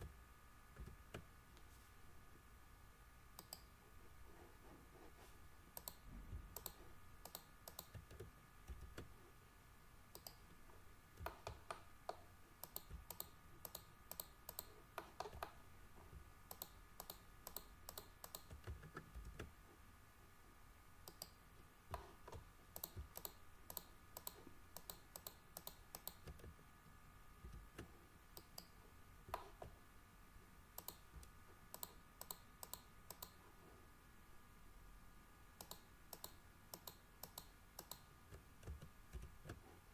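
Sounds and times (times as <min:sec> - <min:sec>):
faint high hum: 0:00.0 - 0:39.9
computer mouse and keyboard clicks: 0:05.8 - 0:09.1, 0:11.2 - 0:15.6, 0:16.5 - 0:19.5, 0:21.1 - 0:26.5, 0:30.8 - 0:33.4, 0:35.6 - 0:39.7.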